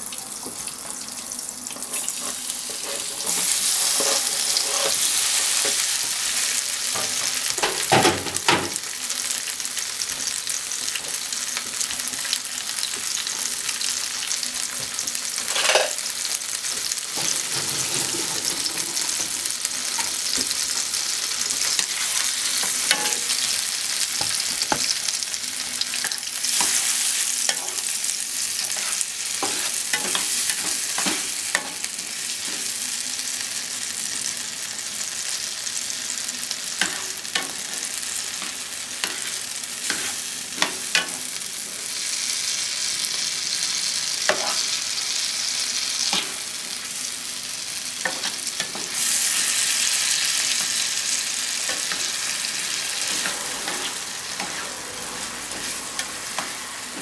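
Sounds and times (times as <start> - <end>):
tomatoes sizzling in a frying pan: 0.0 - 57.0
spatula scraping and knocking pan: 17.1 - 20.6, 28.6 - 32.6.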